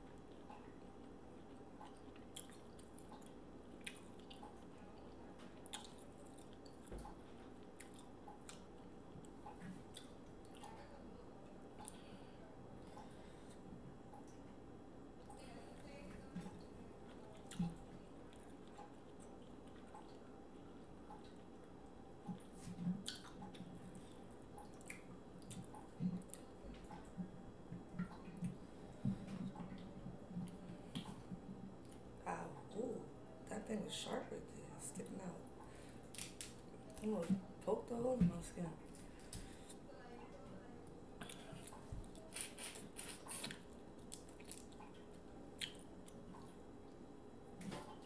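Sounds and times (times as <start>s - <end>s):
soft chewing and smacks: 0.0s - 33.6s, 34.4s - 48.0s
shellfish shells cracking: 36.1s - 36.6s.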